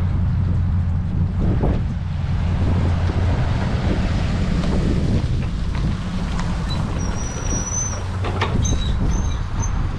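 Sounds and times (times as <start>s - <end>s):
wind buffeting microphone: 0.0s - 9.9s
thin high squeal: 6.7s - 8.0s.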